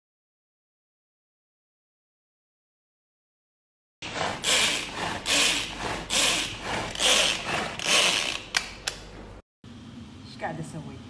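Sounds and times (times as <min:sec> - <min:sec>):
pull-cord food chopper whirring: 0:04.0 - 0:08.7.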